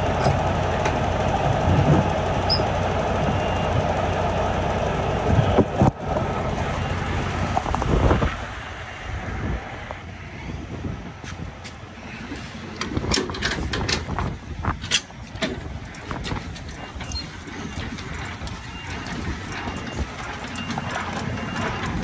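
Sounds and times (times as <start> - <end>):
truck engine idling: 0.0 - 10.4, 11.7 - 22.0
metallic clicks and rattles: 12.8 - 22.0.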